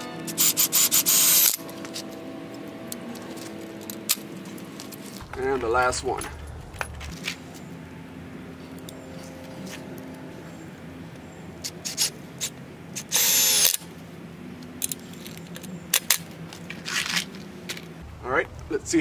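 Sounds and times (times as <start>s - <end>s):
impact drill driving screw: 0.4s - 1.6s.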